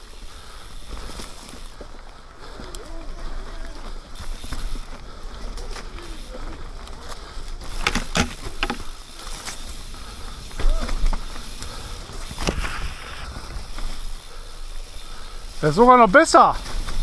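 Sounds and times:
bike rattling: 0.0s - 17.0s
tyres rolling over mud and leaves: 0.0s - 17.0s
bike knocking over bumps: 7.6s - 9.7s, 10.4s - 13.0s.

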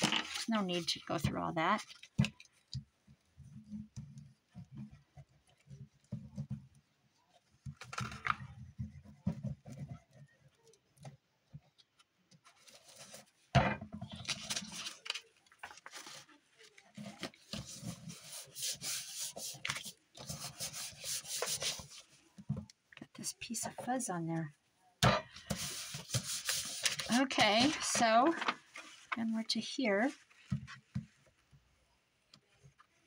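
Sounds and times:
scratchy rubbing of paper: 17.0s - 22.1s, 25.5s - 29.1s.

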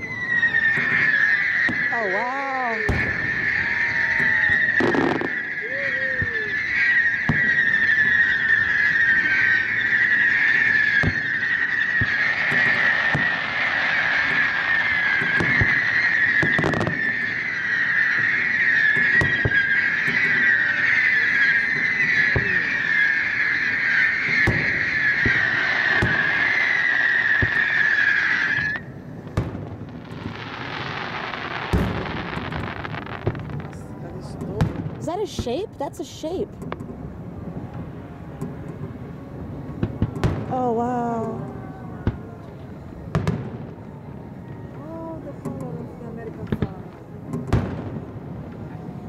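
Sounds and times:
firework shells bursting: 0.5s - 35.5s.

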